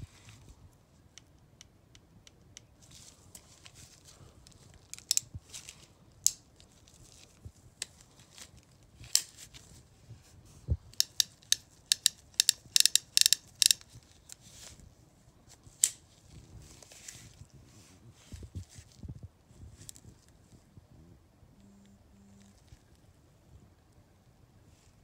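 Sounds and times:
revolver action clicking: 11.0s - 13.8s
revolver cylinder clicking: 11.0s - 13.8s.

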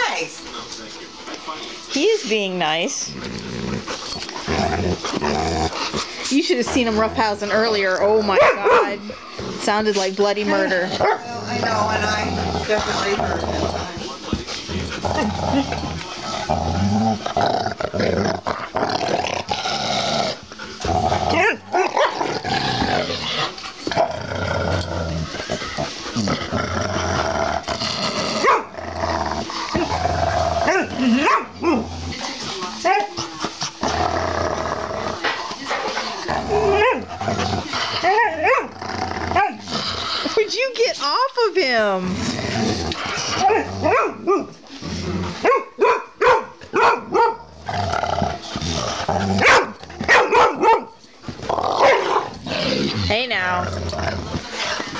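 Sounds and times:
dogs growling and snarling: 0.4s - 45.7s, 46.6s - 54.9s
dogs barking sharply: 28.4s - 28.7s, 45.4s - 47.4s, 49.4s - 51.0s.

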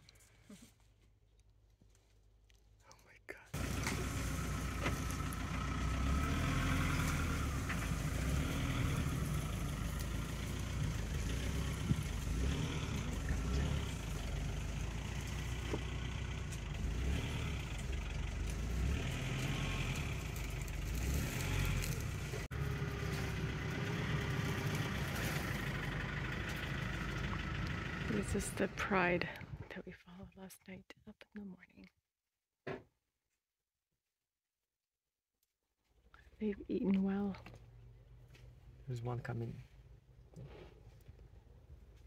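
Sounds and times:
vehicle engine idling: 3.6s - 29.6s, 36.0s - 42.0s.

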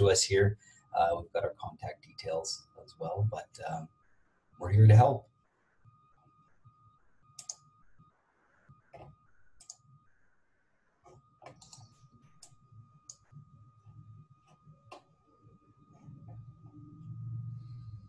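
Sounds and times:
faint steady high tone: 0.0s - 18.0s
computer clicks: 7.4s - 7.8s, 8.9s - 9.9s, 11.0s - 13.4s.

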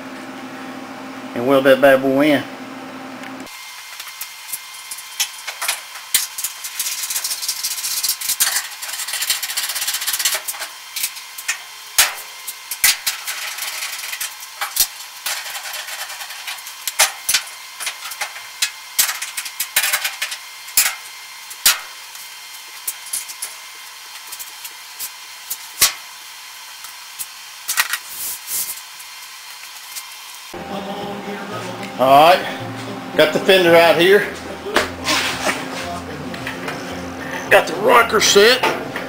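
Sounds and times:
metal scraping: 30.6s - 37.8s.

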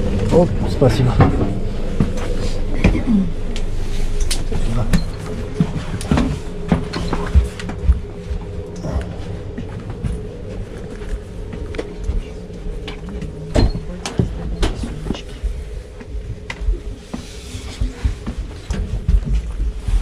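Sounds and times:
wheeled suitcase rolling: 0.0s - 19.8s
steady hum: 0.0s - 20.0s.

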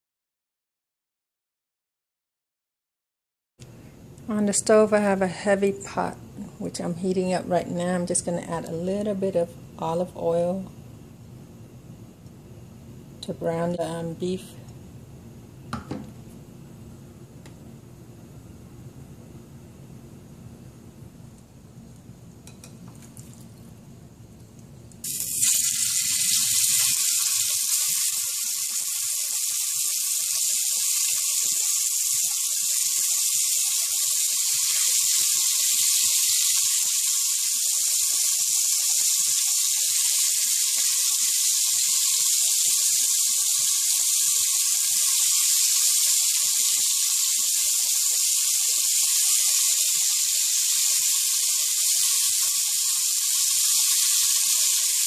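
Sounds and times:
meat sizzling in hot oil: 25.0s - 55.0s.

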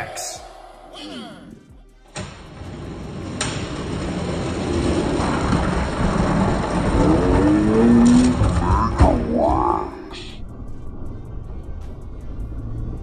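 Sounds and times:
toy trucks rolling on plastic track: 2.7s - 9.6s.

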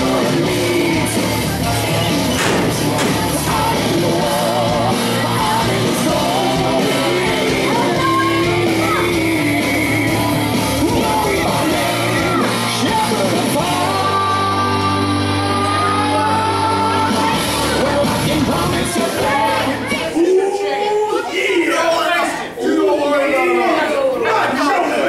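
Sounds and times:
rock song with vocals and guitar: 0.0s - 20.0s.

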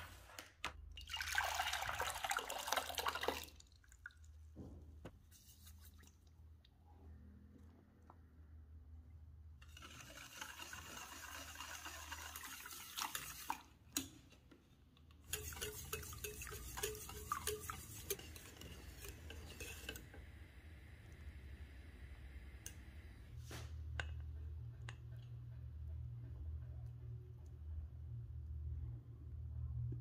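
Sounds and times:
whisk scraping metal pan: 9.6s - 14.3s, 15.2s - 20.2s.

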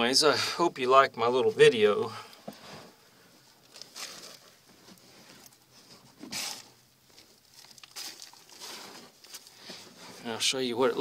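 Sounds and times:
rustling and scuffing in dirt: 2.5s - 11.0s.

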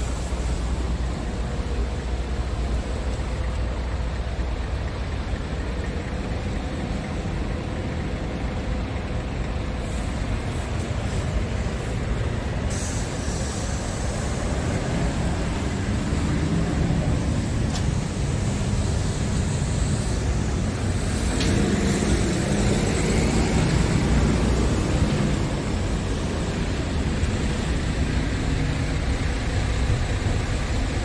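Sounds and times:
diesel engine idling: 0.0s - 31.0s
high hiss: 9.7s - 31.0s.

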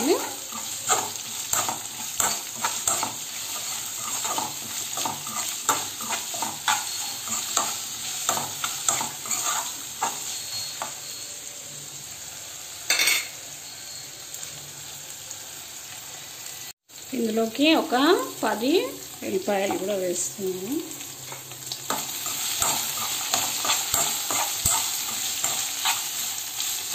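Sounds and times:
metal spatula scraping a pan: 0.0s - 11.2s, 21.3s - 26.9s
chillies sizzling in hot oil: 0.0s - 26.9s.

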